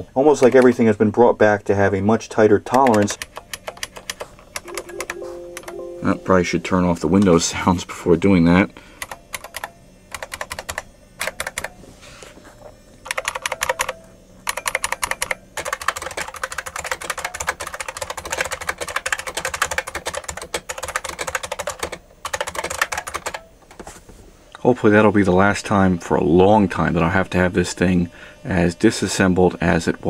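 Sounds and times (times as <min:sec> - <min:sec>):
keyboard keys clicking: 0:02.7 - 0:06.2, 0:09.0 - 0:11.7, 0:13.1 - 0:23.4.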